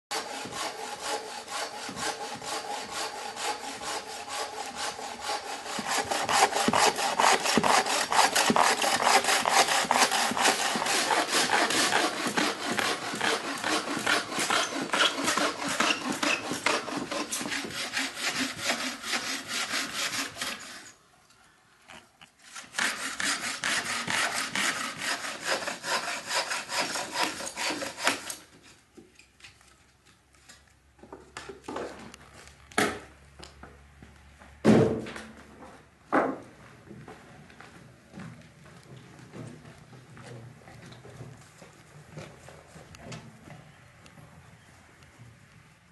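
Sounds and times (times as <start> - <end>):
bow saw cutting a log: 0.1 - 21.0, 22.4 - 28.5.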